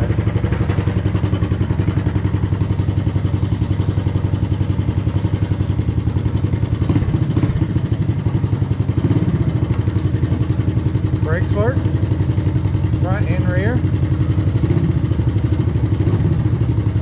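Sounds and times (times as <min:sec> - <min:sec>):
engine idling with rapid putter: 0:00.0 - 0:17.0.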